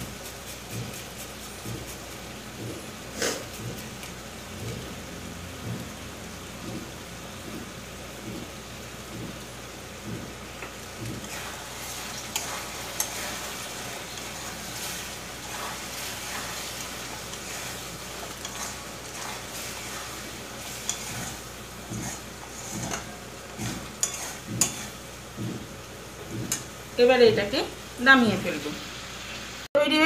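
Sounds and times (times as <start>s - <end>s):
low sizzle of cooking: 0.0s - 30.0s
spatula tapping on pan: 10.0s - 11.4s, 24.0s - 24.8s, 25.4s - 25.7s, 26.3s - 26.7s
spatula scraping a pan: 11.1s - 25.0s.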